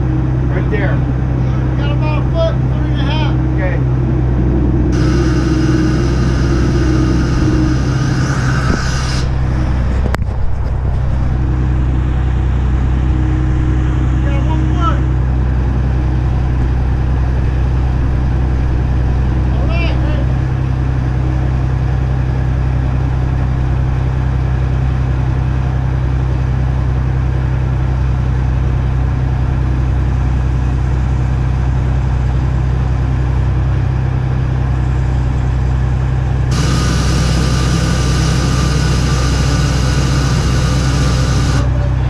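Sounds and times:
diesel engine droning: 0.0 - 42.0
hissing whining noise: 4.9 - 10.2, 36.5 - 42.0.

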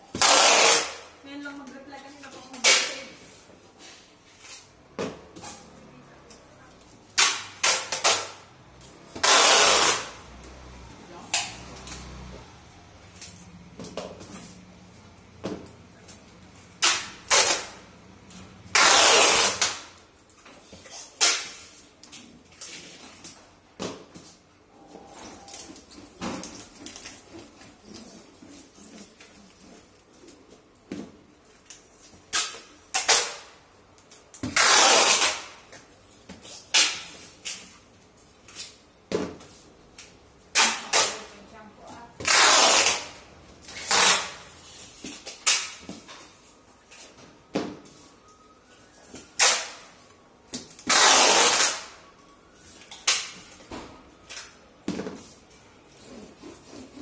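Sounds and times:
packing tape screeching off roll: 0.1 - 1.2, 7.2 - 8.4, 9.2 - 10.2, 16.8 - 17.8, 18.7 - 19.9, 32.3 - 33.5, 34.4 - 35.6, 42.2 - 44.5, 49.2 - 49.9, 50.8 - 52.0.

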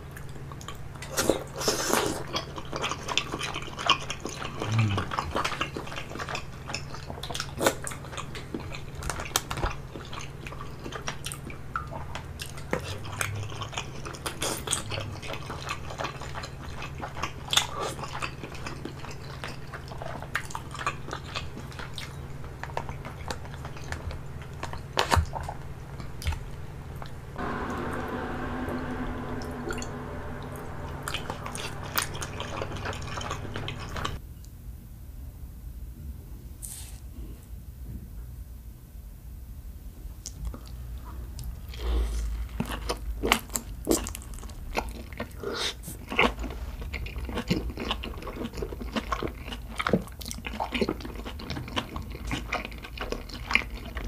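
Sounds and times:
wet chewing and smacking: 0.1 - 27.2, 40.2 - 54.0
steady humming tone: 27.3 - 34.2.

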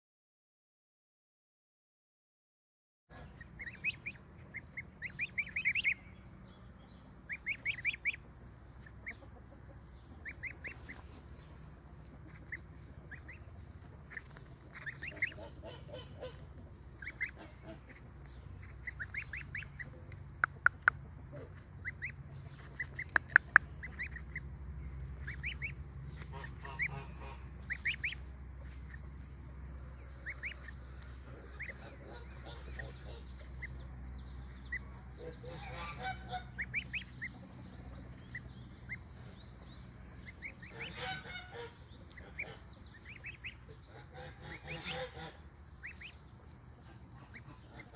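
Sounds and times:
goslings peeping: 3.1 - 47.9
sharp clicks: 20.4 - 21.0, 23.1 - 23.7.

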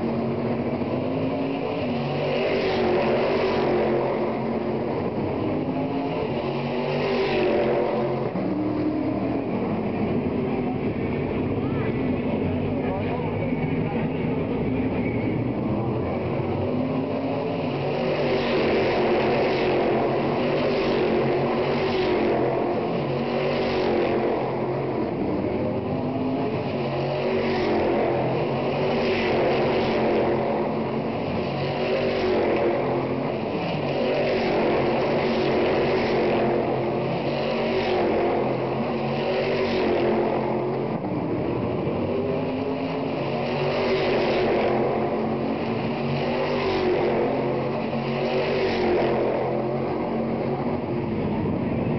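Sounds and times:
race car engines: 0.0 - 51.9.

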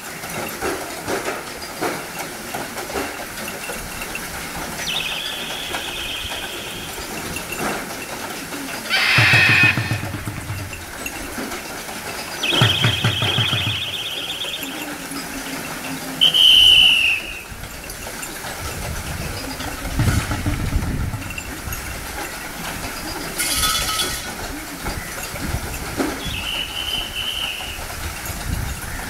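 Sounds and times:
whistle blasts: 4.9 - 7.1, 12.4 - 14.7, 16.2 - 17.5, 26.2 - 27.8.

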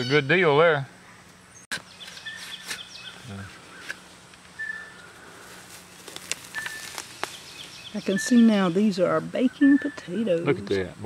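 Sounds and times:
birds chirping faintly: 0.0 - 11.0
fork digging dry soil: 1.7 - 4.0.

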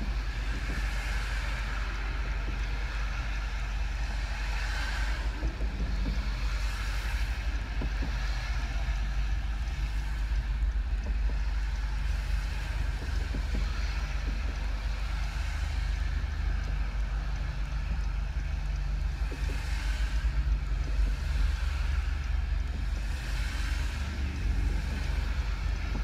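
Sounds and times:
car engine idling: 0.0 - 26.0
highway traffic: 0.0 - 26.0.

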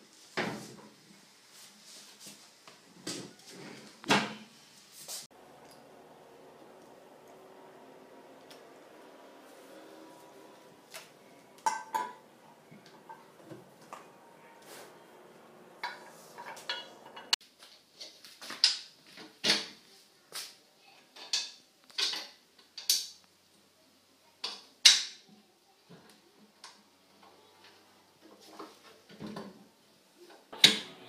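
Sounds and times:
cast iron parts clinking: 11.6 - 14.0, 15.8 - 17.4.

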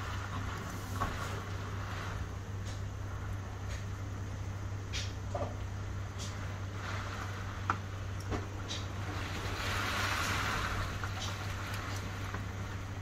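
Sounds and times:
steady rain falling: 0.0 - 13.0
rushing wind: 6.4 - 13.0.

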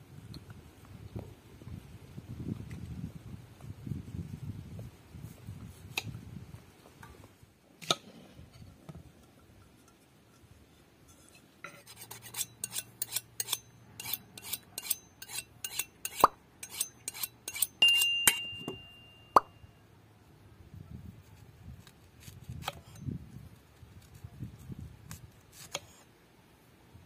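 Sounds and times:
utensil clinking against a bowl: 12.2 - 19.5.

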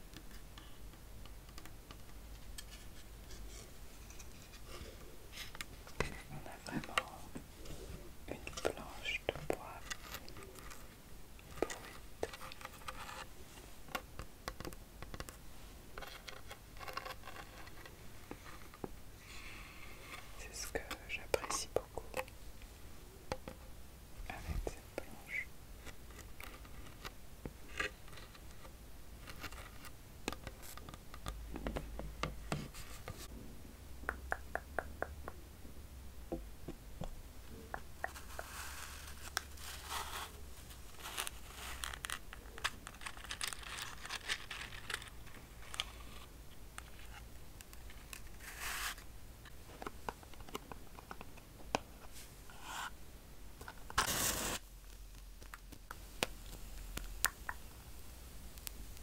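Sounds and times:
matchbox sliding open and rattling: 38.2 - 47.2, 53.8 - 54.6.

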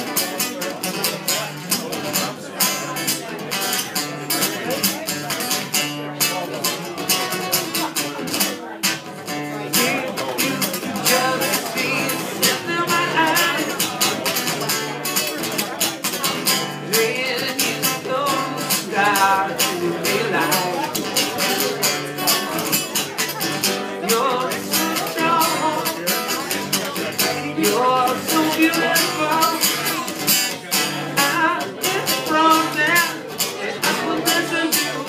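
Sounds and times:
acoustic guitar strumming: 0.0 - 35.0
person singing: 9.3 - 35.0.

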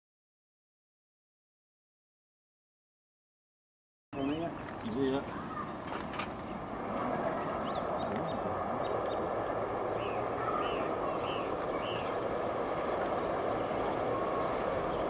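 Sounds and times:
small bird chirping: 9.9 - 14.0.

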